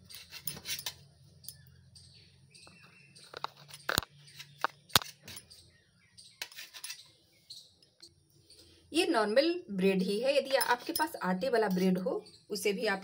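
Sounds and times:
knife scraping a metal plate: 0.0s - 1.0s, 6.4s - 7.2s
sharp metal clinks: 10.5s - 11.9s.

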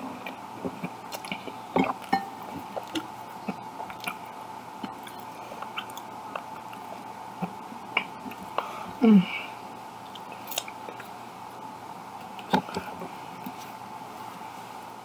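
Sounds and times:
faint steady hum: 0.0s - 15.0s
person chewing food: 0.2s - 8.7s, 10.0s - 11.2s.

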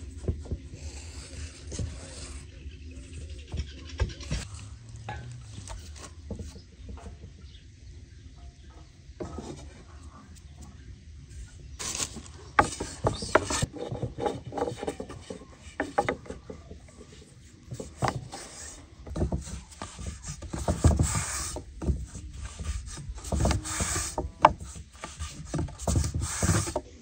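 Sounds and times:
rolling pin on wooden board: 11.8s - 27.0s.

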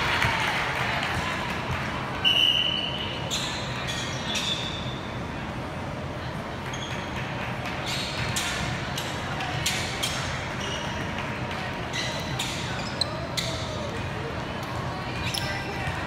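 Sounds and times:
murmur of voices: 0.0s - 16.0s
sneaker squeaks: 2.2s - 5.3s, 6.6s - 14.2s, 14.8s - 16.0s.

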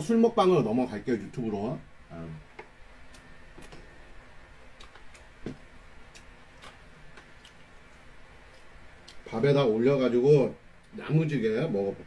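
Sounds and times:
clicks from eating: 4.8s - 5.3s.

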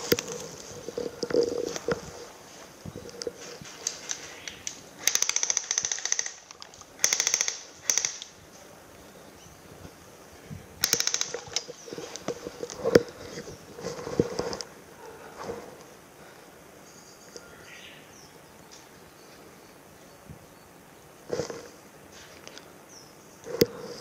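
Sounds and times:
sharp crack: 3.9s - 8.4s, 10.8s - 11.8s
airsoft guns firing bursts: 5.0s - 8.4s, 10.8s - 11.7s.

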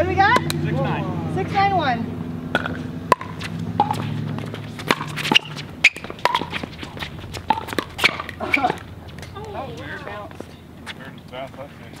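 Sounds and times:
ball bouncing on court: 0.2s - 0.6s, 2.5s - 10.4s
shoe scuffs on hard court: 3.2s - 9.4s.

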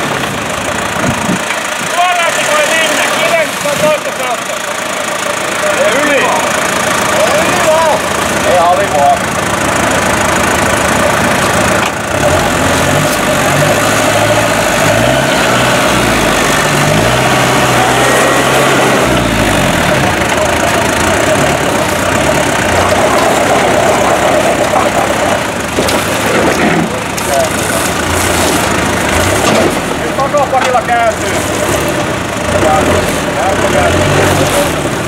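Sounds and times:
off-road vehicle engine revving: 0.0s - 35.0s.

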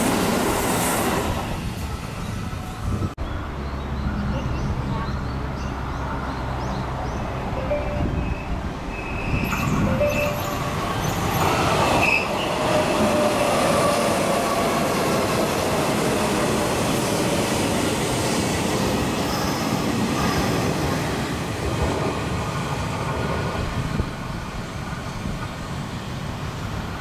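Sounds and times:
train wheels rumbling and clattering: 8.6s - 27.0s.

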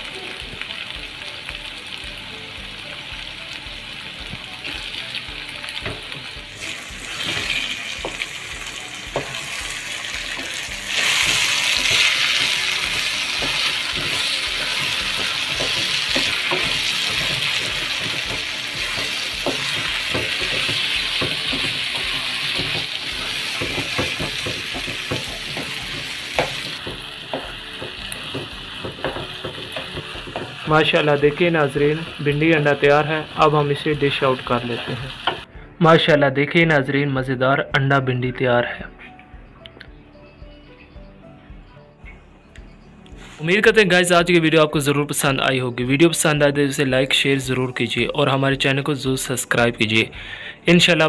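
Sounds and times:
food sizzling in oil: 0.0s - 35.5s
spatula scraping a wok: 6.6s - 30.6s.

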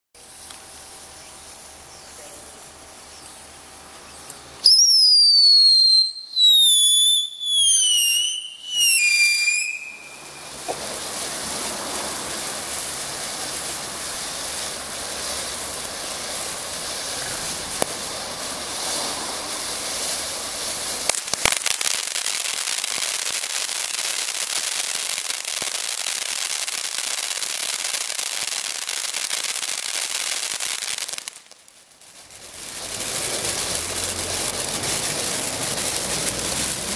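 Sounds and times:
firework whistles falling in pitch: 4.6s - 10.9s
firework cracks: 4.6s - 36.9s
hiss of spraying sparks: 5.8s - 36.9s.

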